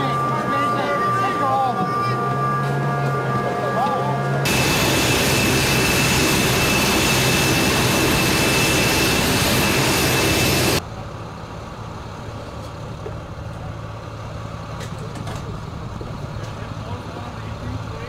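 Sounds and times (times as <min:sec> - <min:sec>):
jet engine rush and whine: 0:00.0 - 0:12.0.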